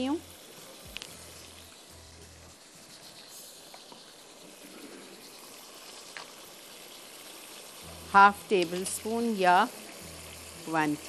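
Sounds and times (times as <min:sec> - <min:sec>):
chutney simmering hiss: 0:00.0 - 0:11.0
small ticks: 0:00.8 - 0:01.9, 0:02.5 - 0:07.6.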